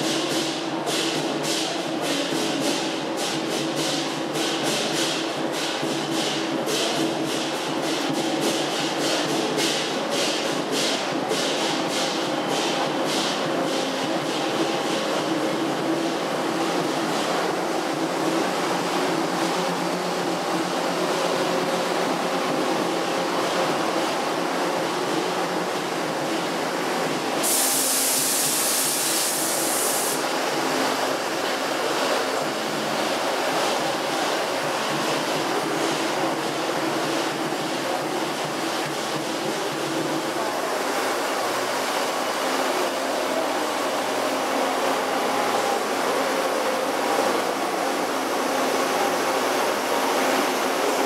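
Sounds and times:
loud hiss: 0.0s - 51.0s
diesel train engines humming: 39.1s - 51.0s.

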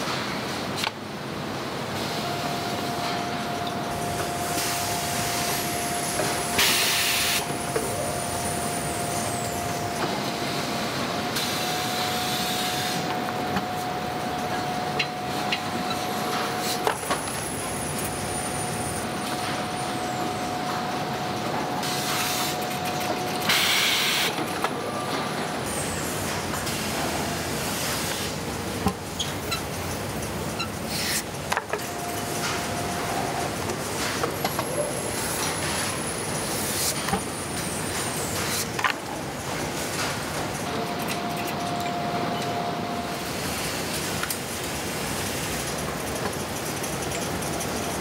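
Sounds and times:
steam hiss bursts: 4.6s - 7.4s.

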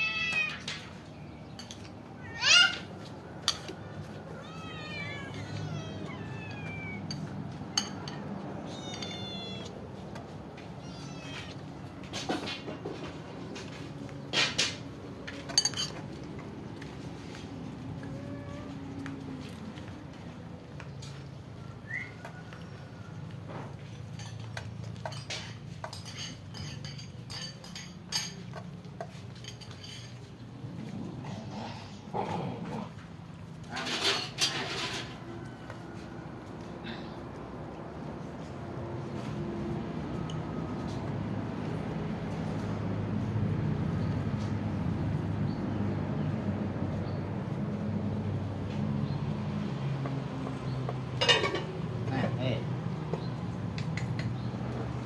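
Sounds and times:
cats and kittens meowing: 0.0s - 1.0s, 1.9s - 12.1s, 17.7s - 19.4s
cats chewing and clicking bowl: 11.4s - 31.0s.

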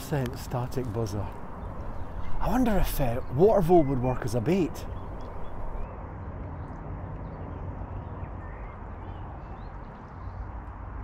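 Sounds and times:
outdoor background noise: 0.0s - 11.0s
faint bird chirps: 1.4s - 5.8s.

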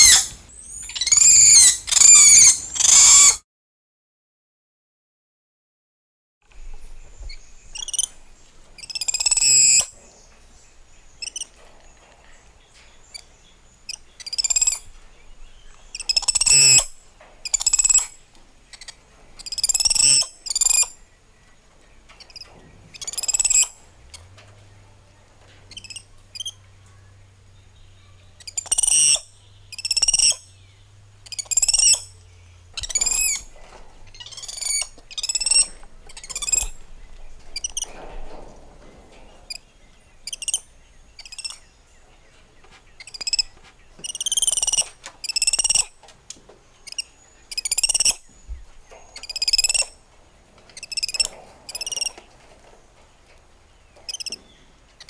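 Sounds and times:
monkeys chirping and screeching: 0.0s - 3.4s, 8.8s - 9.9s, 15.9s - 18.1s, 18.8s - 20.9s, 23.0s - 23.7s, 25.7s - 26.5s, 28.4s - 30.5s, 31.2s - 32.2s, 32.8s - 33.5s, 34.1s - 36.8s, 40.2s - 40.6s, 41.2s - 41.6s, 43.0s - 45.9s, 46.8s - 48.2s, 49.2s - 49.9s, 50.8s - 52.2s, 54.1s - 54.3s.

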